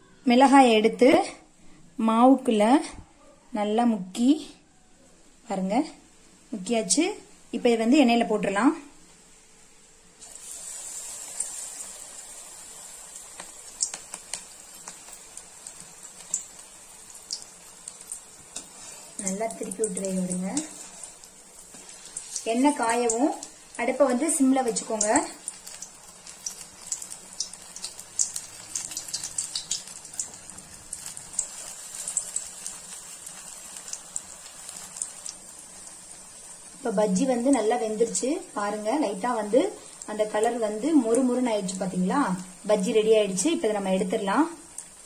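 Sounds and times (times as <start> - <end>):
battered chilli frying in oil: 5.4 - 45.0
sharp crackling pops: 13.1 - 36.0.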